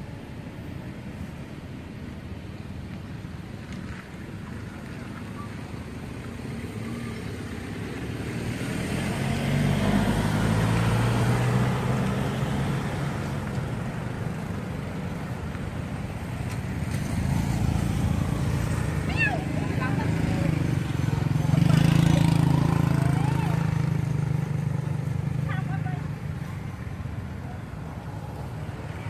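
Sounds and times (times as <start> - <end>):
engine approaching: 3.9 - 29.0
vehicle engine passing by: 6.4 - 14.6, 16.7 - 29.0.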